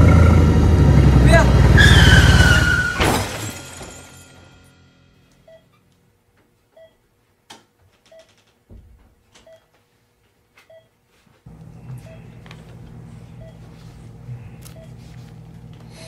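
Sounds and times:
low hum: 0:00.0 - 0:06.1, 0:11.5 - 0:16.0
motorcycle crash: 0:01.5 - 0:05.1
patient monitor beeps: 0:05.4 - 0:05.8, 0:06.7 - 0:07.0, 0:08.1 - 0:08.4, 0:10.6 - 0:10.9, 0:11.8 - 0:13.8, 0:14.4 - 0:15.1.

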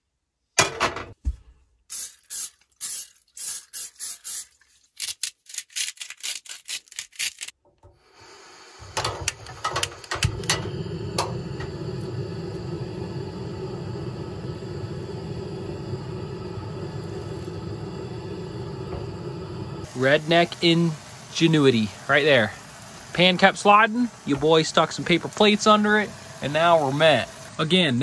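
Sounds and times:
camp stove burner roaring: 0:07.8 - 0:28.0.

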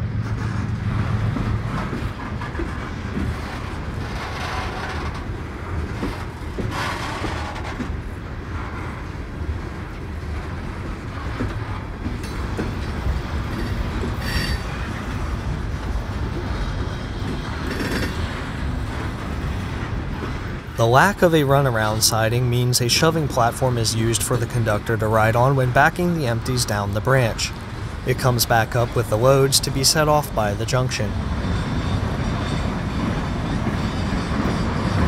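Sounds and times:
train cars rumbling on rails: 0:00.0 - 0:35.0
wheels clicking over rail joints: 0:00.2 - 0:35.0
train wheel squeal: 0:12.2 - 0:15.4, 0:16.5 - 0:18.6, 0:31.2 - 0:35.0.

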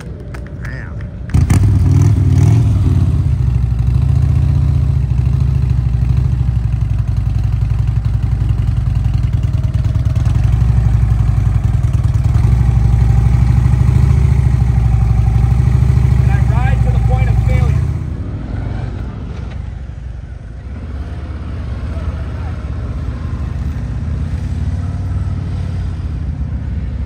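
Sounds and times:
motorcycle engine running: 0:00.0 - 0:18.2.

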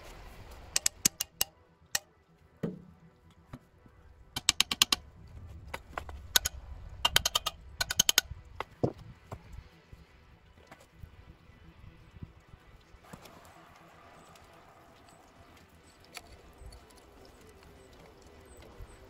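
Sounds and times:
hammer tapping steel rake head: 0:00.8 - 0:01.5, 0:04.4 - 0:05.0, 0:06.4 - 0:08.2.

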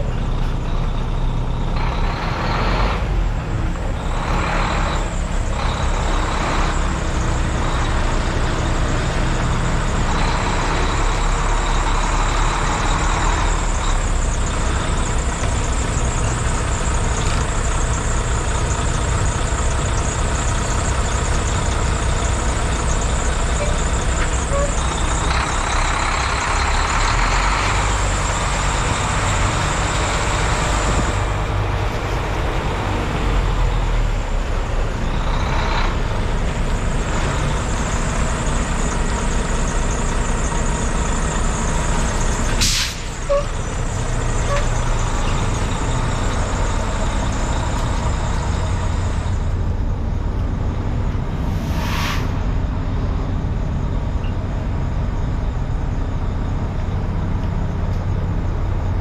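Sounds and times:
diesel truck engine idling: 0:00.0 - 0:51.6, 0:52.2 - 0:59.0
short hiss: 0:42.6 - 0:43.2, 0:51.4 - 0:52.6
sharp sudden sound: 0:51.2 - 0:53.1.

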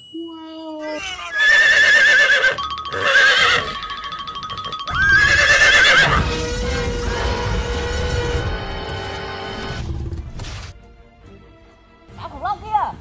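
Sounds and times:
horse whinnying: 0:00.8 - 0:06.9
background music: 0:01.4 - 0:13.0.

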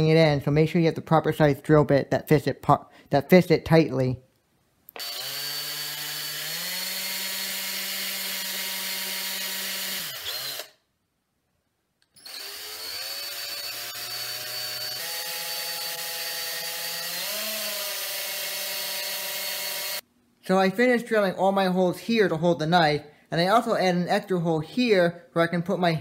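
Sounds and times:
cordless drill whining: 0:04.9 - 0:10.8, 0:12.1 - 0:20.0.

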